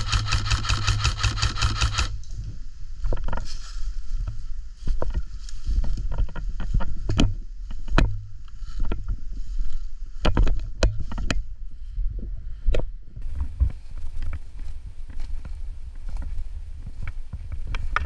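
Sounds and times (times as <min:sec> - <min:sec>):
camera movement rumble: 0:00.0 - 0:18.0
footsteps through dry leaves: 0:03.4 - 0:06.0, 0:13.2 - 0:17.3.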